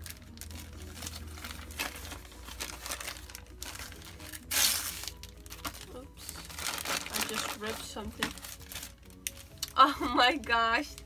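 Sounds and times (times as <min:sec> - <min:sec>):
paper ripping: 0:00.0 - 0:09.7
wrapping paper crinkling: 0:00.0 - 0:10.0.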